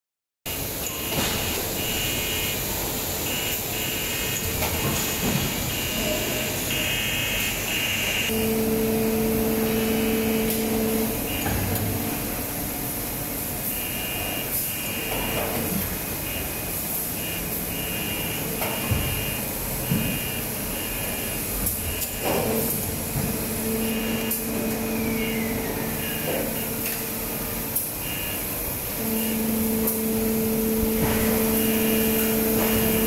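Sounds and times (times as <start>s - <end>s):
machinery noise with hiss: 0.5s - 33.0s
high whining tones: 6.7s - 12.3s
low hum: 8.3s - 12.3s.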